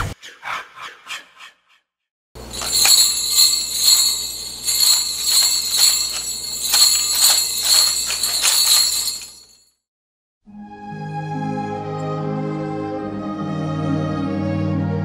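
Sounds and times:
small bells rattling rhythmically: 2.4 - 9.6.

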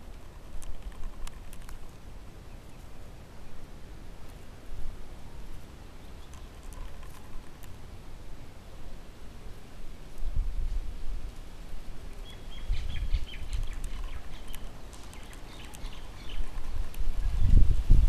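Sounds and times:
high bird chirps: 12.2 - 17.6.

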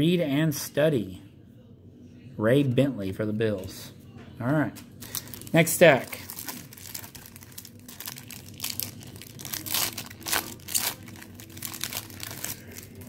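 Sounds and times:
wax-paper wrappers crinkling and tearing: 4.8 - 13.0.

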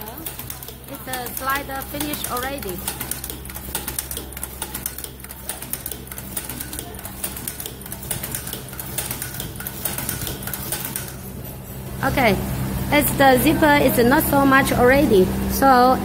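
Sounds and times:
machine clicking clatter: 0.0 - 11.6
machine low hum: 0.0 - 16.0.

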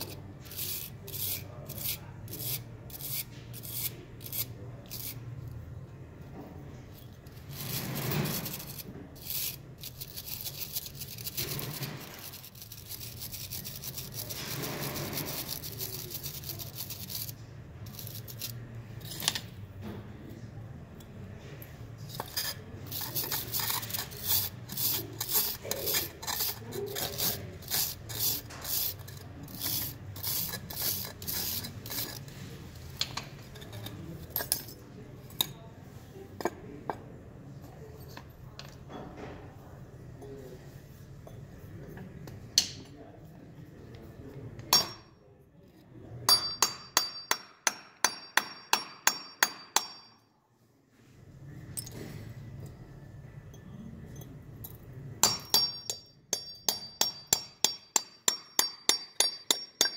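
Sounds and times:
wire brush scrubbing metal: 0.0 - 5.2, 7.3 - 19.3, 22.1 - 32.4
plaster scraping off metal: 7.4 - 17.3.

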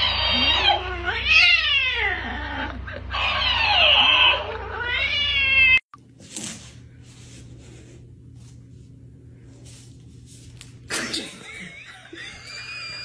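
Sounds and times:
cat yowling: 0.0 - 5.8.

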